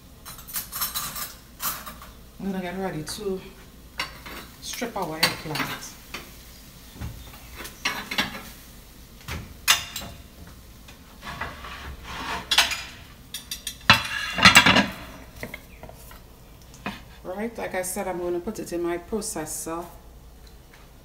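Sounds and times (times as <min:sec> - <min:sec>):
kitchen utensils and dishes clinking: 0:00.2 - 0:02.2, 0:04.0 - 0:06.2, 0:07.3 - 0:08.6, 0:09.6 - 0:10.3, 0:11.2 - 0:16.1.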